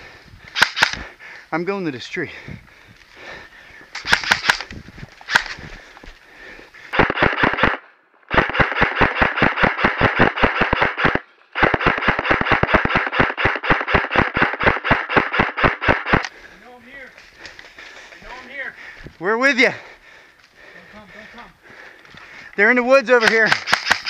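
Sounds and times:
airsoft rifle firing bursts: 0.6s - 1.0s, 4.0s - 4.6s, 6.9s - 16.2s, 23.1s - 24.0s.

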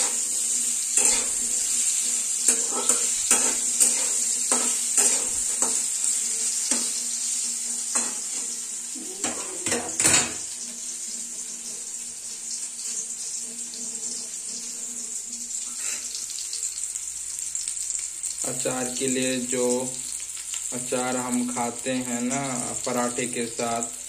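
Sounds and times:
metal spoon scraping a pan: 0.0s - 8.6s, 12.8s - 16.4s
food sizzling in oil: 0.0s - 24.0s.

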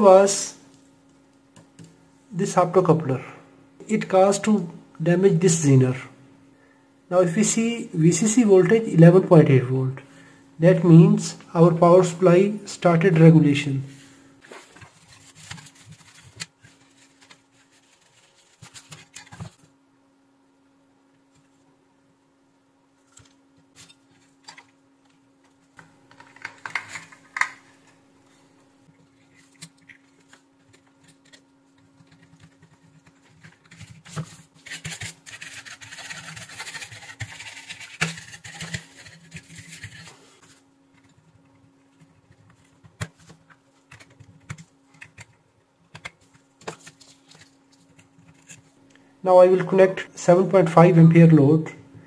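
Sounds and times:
faint steady hum: 0.0s - 52.0s
scraping and rustling: 14.4s - 19.7s.

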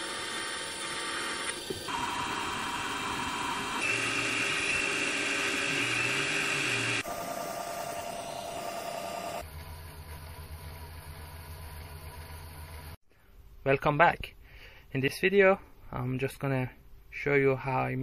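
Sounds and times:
lathe whining: 0.0s - 9.5s.

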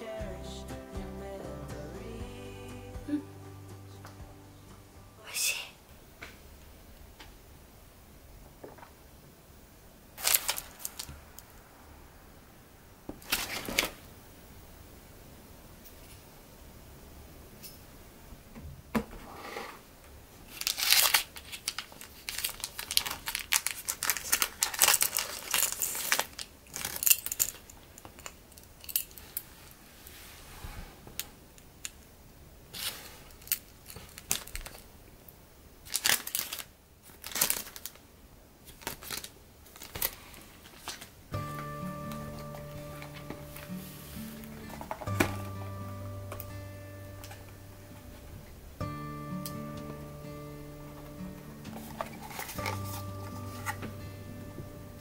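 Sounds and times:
foil packet crinkling: 10.2s - 11.5s, 13.2s - 14.1s, 20.4s - 29.3s, 32.8s - 34.9s, 35.8s - 45.5s, 51.1s - 54.0s
keychain clicks and rustles: 24.1s - 29.4s.

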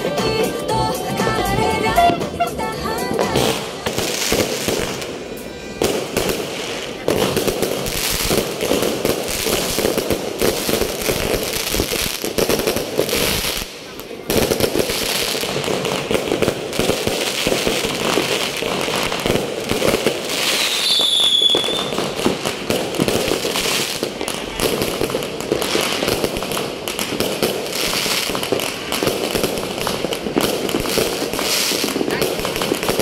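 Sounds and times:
fireworks bangs and crackling: 0.0s - 33.0s
high firework whistle: 20.4s - 22.2s.

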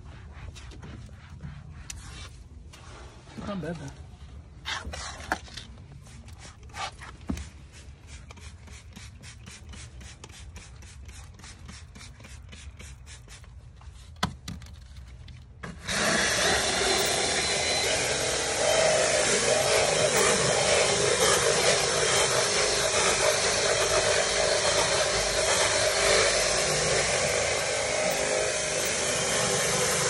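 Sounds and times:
cloth rubbing on vinyl: 0.0s - 14.2s
drill brush scrubbing: 15.6s - 30.0s.

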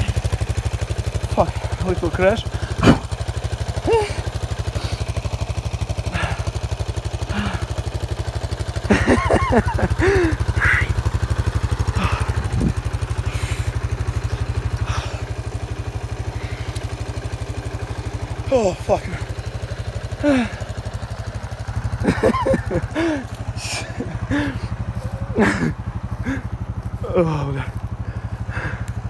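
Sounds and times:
atv engine idling: 0.0s - 29.0s
voices calling out: 0.0s - 29.0s.

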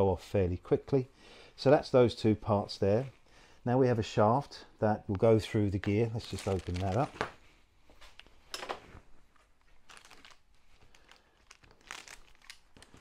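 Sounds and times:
plastic bag crinkling: 5.7s - 7.5s, 8.9s - 13.0s.

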